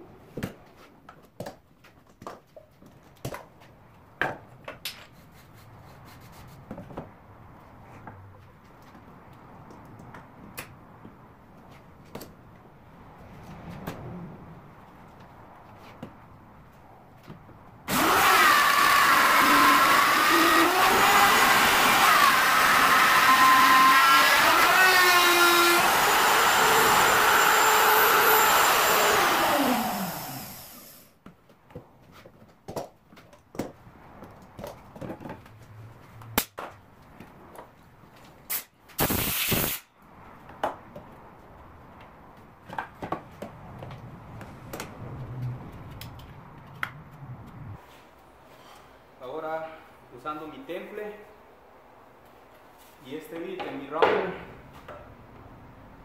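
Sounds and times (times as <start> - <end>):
electric router whining: 17.9 - 31.0
short hiss: 38.5 - 39.9.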